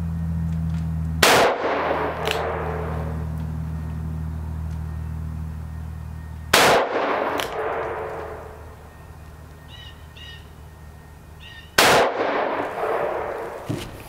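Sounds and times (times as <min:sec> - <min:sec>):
revolver gunshots: 0:01.2 - 0:04.2, 0:06.4 - 0:09.5, 0:11.7 - 0:13.7.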